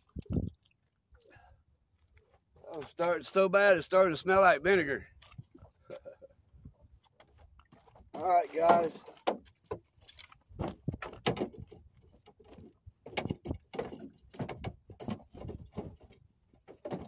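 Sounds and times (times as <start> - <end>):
fishing gear clicking and rattling: 7.0 - 17.0.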